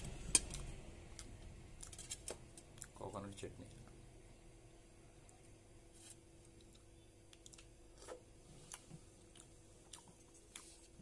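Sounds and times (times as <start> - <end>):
low room hum: 0.0 - 11.0
mouth clicks and smacks chewing: 6.5 - 7.8, 8.7 - 10.8.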